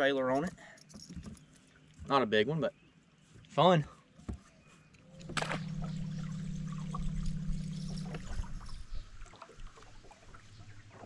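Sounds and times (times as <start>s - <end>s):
fishing reel spool whirring: 5.1s - 10.9s
lure splashing on water: 5.1s - 11.0s.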